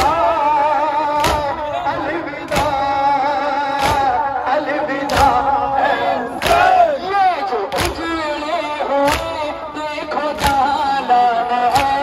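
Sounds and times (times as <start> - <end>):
hands striking chests in unison: 0.0 - 0.4, 1.0 - 4.4, 5.0 - 7.0, 7.6 - 8.3, 9.0 - 9.6, 10.3 - 10.9, 11.7 - 12.0
voices chanting long held notes: 0.0 - 9.8.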